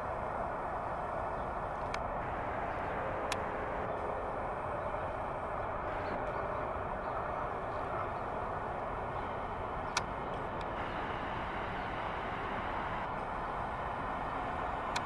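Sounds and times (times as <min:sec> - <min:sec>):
distant urban traffic hum: 0:00.0 - 0:15.0
sharp clicks: 0:09.8 - 0:12.0.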